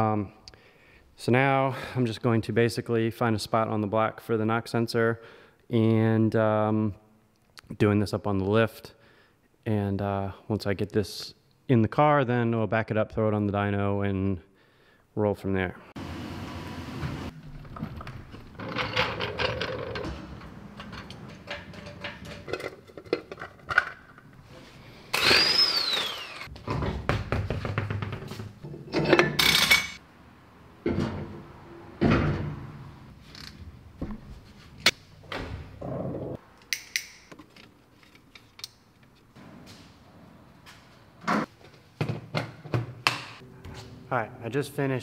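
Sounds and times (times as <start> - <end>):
tool handling: 17.4 - 24.4
metal clunks and knocks: 17.5 - 23.9, 30.8 - 32.8.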